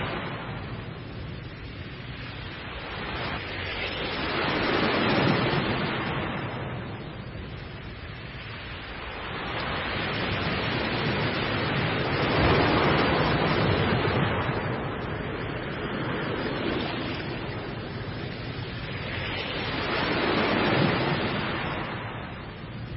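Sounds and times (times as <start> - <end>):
waves breaking: 0.0 - 22.9.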